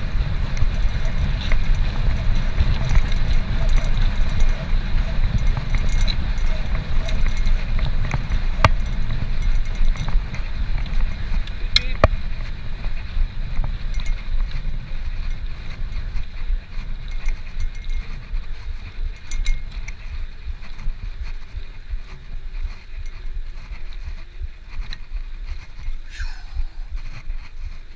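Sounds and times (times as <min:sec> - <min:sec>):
bike clicks and rattles: 0:00.0 - 0:27.9
road and wind rumble: 0:00.0 - 0:27.9.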